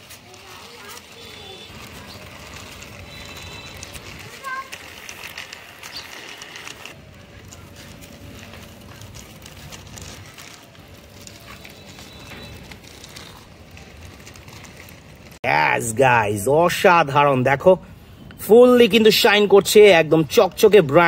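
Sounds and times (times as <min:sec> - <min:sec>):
plastic toy and packaging handled: 0:00.0 - 0:15.4.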